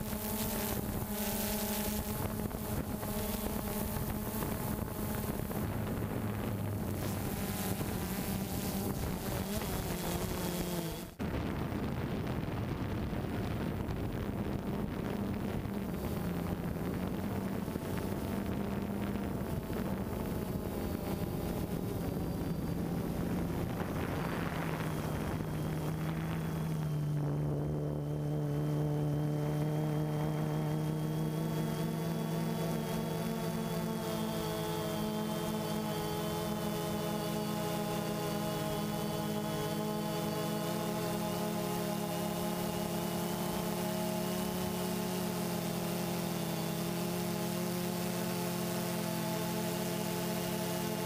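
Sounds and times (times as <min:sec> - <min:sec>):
wind hiss: 0:00.0 - 0:31.6
drone propellers humming: 0:00.0 - 0:51.0.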